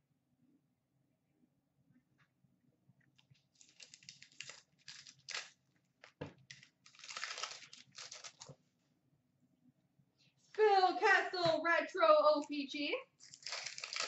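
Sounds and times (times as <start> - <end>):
cards rustling: 3.4 - 8.6, 13.2 - 14.0
wrappers crinkling: 3.5 - 8.5, 13.2 - 14.0.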